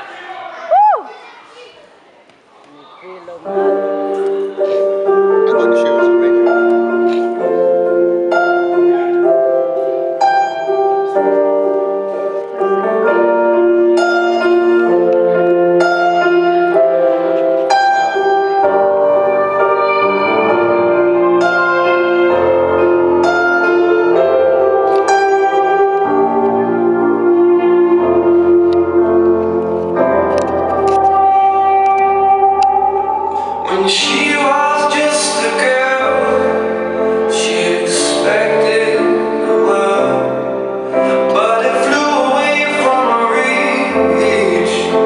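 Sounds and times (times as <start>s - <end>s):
slow piano music: 3.4s - 45.0s.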